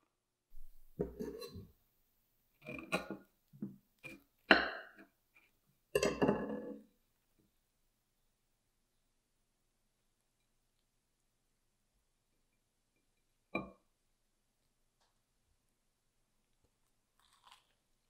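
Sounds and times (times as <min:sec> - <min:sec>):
knife cutting crunchy toast: 0:17.2 - 0:17.8.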